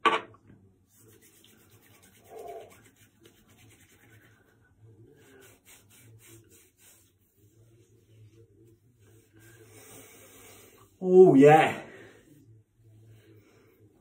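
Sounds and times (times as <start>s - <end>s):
oiled hands rubbing: 0.9s - 11.0s.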